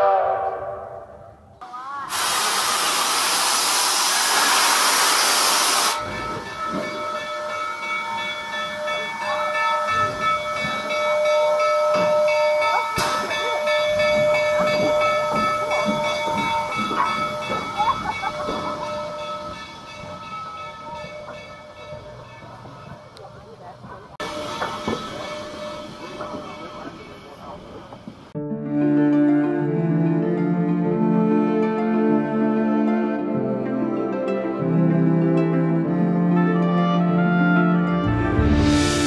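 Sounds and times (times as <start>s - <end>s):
steam hissing from locomotive: 2.0s - 7.1s, 24.2s - 28.3s.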